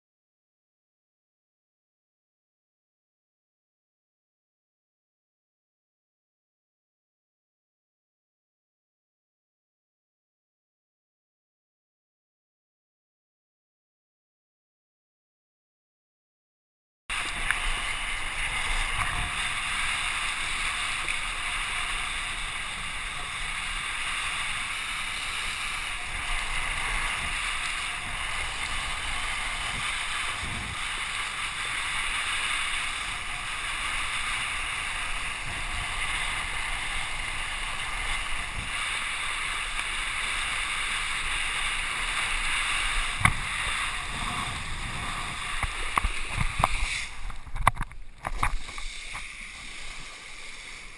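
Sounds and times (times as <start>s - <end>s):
water spray from kiteboard: 17.1s - 50.9s
wind rush: 17.1s - 50.9s.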